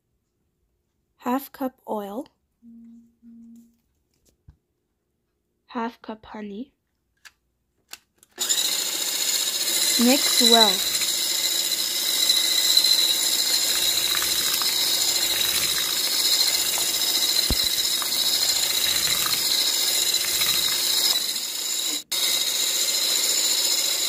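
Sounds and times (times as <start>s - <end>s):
electric hand mixer whipping batter: 8.4s - 24.0s.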